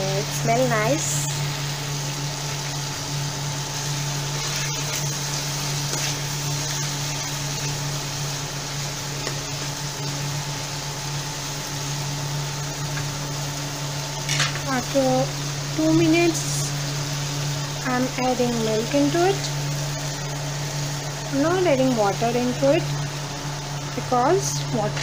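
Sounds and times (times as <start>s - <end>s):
low mechanical hum with hiss: 0.0s - 25.0s
spoon stirring in a pan: 4.3s - 7.7s.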